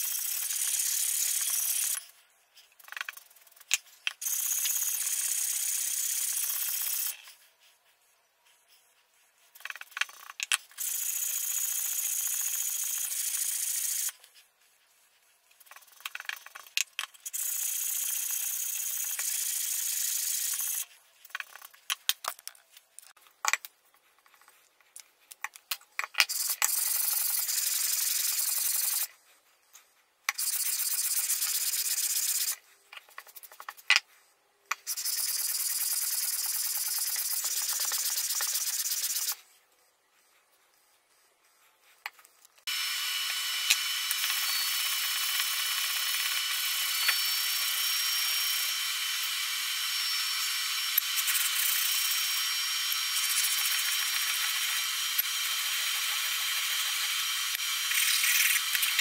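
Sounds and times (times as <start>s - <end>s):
metal scrubbing on sandpaper: 26.4s - 33.9s, 34.8s - 42.0s, 52.9s - 54.6s.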